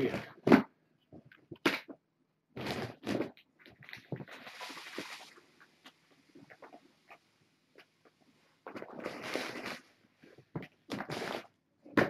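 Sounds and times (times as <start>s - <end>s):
knocks and scrapes on microphone: 2.6s - 5.3s, 8.6s - 12.0s.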